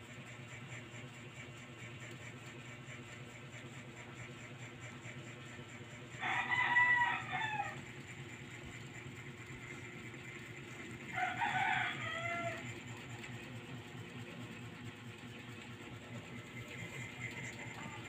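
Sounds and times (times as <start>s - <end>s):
rooster crowing: 6.2s - 7.9s, 11.1s - 12.8s.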